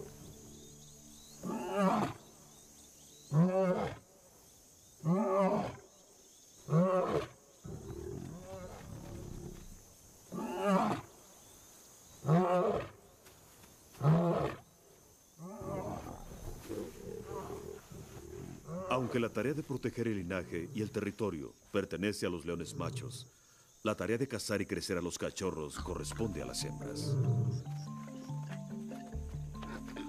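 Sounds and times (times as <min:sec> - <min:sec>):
lion roaring: 0:15.4 - 0:19.2.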